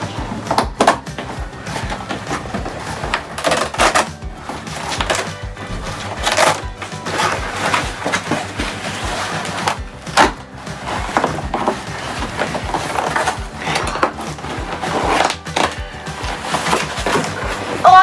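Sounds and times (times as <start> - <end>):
background music with beat: 0.0 - 18.0.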